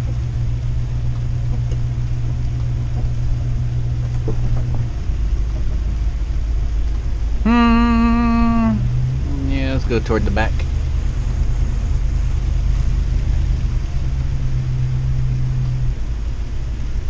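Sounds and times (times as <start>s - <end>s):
vehicle engine and road rumble: 0.0s - 17.0s
held pitched tone: 7.4s - 10.6s.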